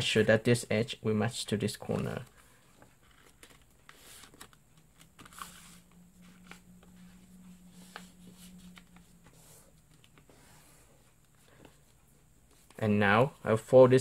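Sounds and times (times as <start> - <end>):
faint low hum: 0.0 - 14.0
paper rustling and creasing: 1.8 - 12.9.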